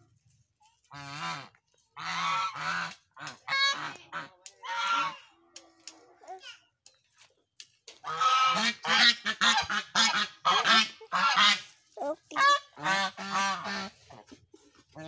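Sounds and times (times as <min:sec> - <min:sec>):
geese honking: 0:08.0 - 0:14.3.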